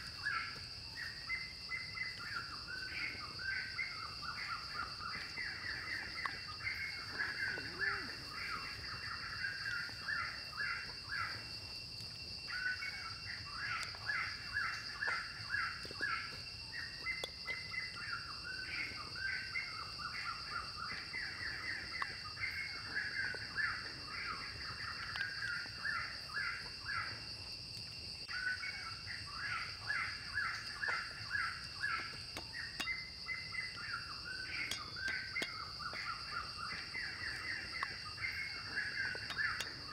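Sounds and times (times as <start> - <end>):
bird chirping: 0.0 - 11.7, 28.2 - 39.9
high insect drone: 0.0 - 39.9.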